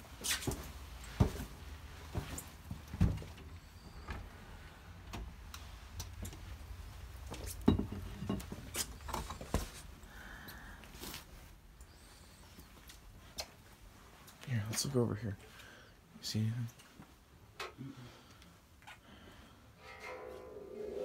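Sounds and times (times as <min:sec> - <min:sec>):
thumps and scuffs of people moving: 0:00.0 - 0:04.3, 0:08.4 - 0:10.0.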